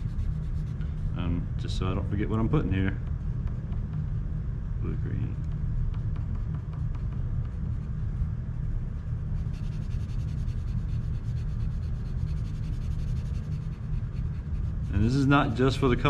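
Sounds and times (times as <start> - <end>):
colored pencil scratching on paper: 0.0 - 1.1, 9.4 - 15.3
steady low rumble: 0.0 - 16.0.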